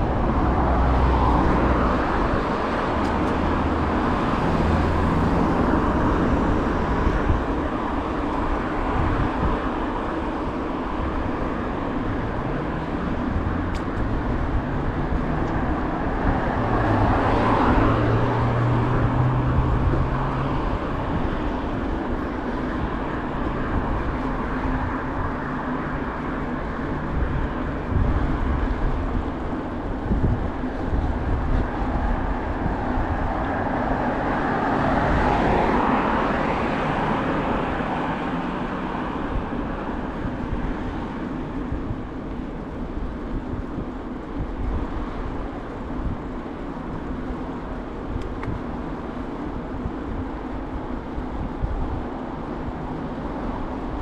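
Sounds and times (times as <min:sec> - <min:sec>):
car passing close: 0:00.0 - 0:07.4, 0:11.8 - 0:21.7
car traffic hum: 0:00.0 - 0:54.0
wind buffeting microphone: 0:00.0 - 0:54.0.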